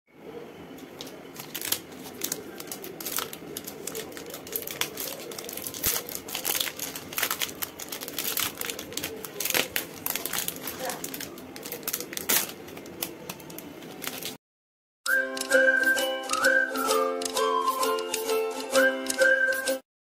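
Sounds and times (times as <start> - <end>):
wrapper crinkling and tearing: 1.0 - 14.4.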